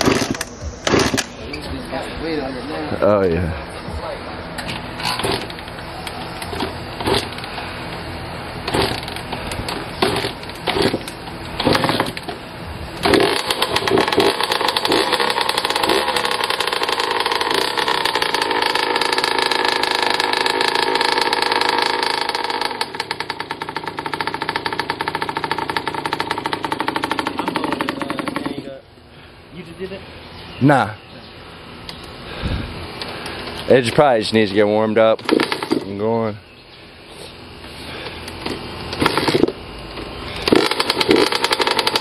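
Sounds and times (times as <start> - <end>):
dirt bike engine revving high: 0.0 - 1.4, 6.4 - 12.2, 12.9 - 28.8, 40.3 - 42.0
dirt bike engine kick-started: 0.0 - 1.6, 4.6 - 7.7, 8.6 - 12.4, 13.0 - 28.8, 35.2 - 36.0, 37.9 - 42.0
uneven pulsing engine idle: 5.2 - 30.4.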